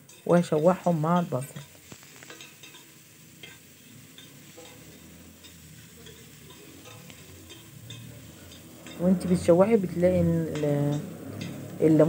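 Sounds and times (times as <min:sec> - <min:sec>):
faint sizzle: 0:00.0 - 0:12.0
spoon scraping a pot: 0:01.5 - 0:09.0
spoon clicking against pot: 0:02.3 - 0:03.6, 0:04.2 - 0:09.0.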